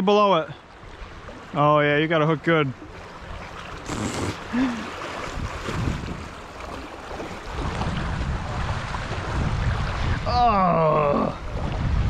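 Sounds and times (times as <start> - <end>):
river water rushing and splashing: 0.0 - 12.0
wind rumble on microphone: 5.2 - 12.0.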